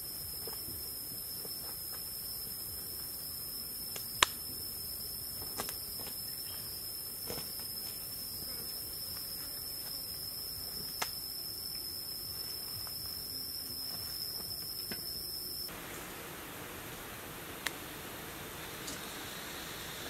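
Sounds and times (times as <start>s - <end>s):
insects singing: 0.0s - 16.1s
hiss: 15.7s - 20.0s.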